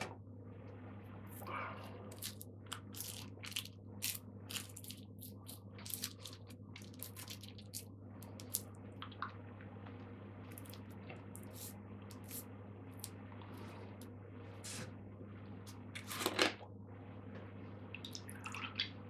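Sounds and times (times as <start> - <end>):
steady low hum: 0.0 - 19.0
rolling paper and tobacco crinkling: 2.1 - 8.7.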